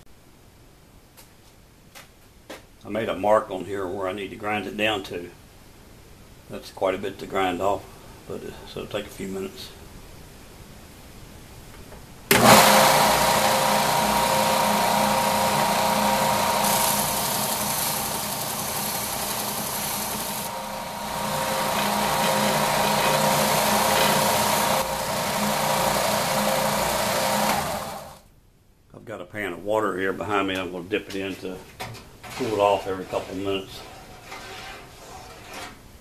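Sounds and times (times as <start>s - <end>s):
belt sander running: 12.3s - 28.2s
steel rod grinding on belt: 13.8s - 28.0s, 32.3s - 35.8s.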